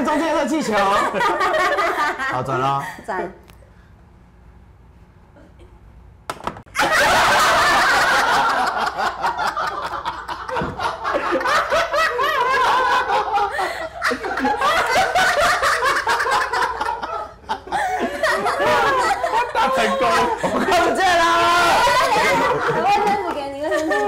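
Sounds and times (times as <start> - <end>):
loud laughter: 6.8 - 24.0.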